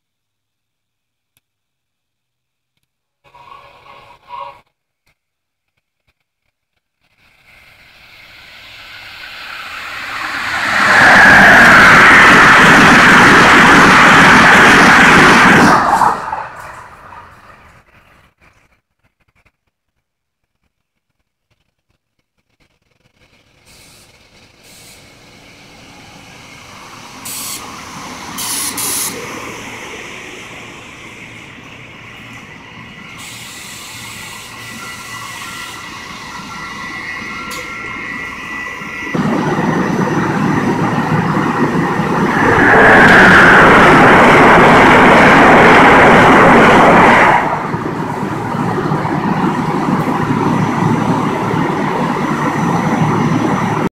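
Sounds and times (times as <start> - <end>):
train cars rushing past: 7.0 - 18.5, 23.0 - 53.9
electric train approaching: 7.1 - 18.4, 23.2 - 53.9.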